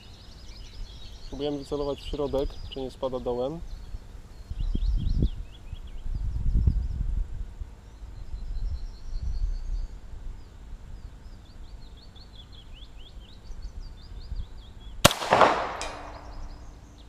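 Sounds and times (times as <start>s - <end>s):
bird chirping: 0.0s - 7.0s, 7.8s - 17.0s
pistol shot with echo: 15.0s - 16.7s.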